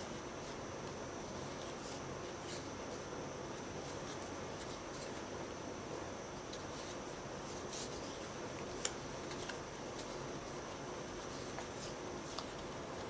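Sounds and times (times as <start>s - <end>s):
cards rustling: 6.4s - 13.0s.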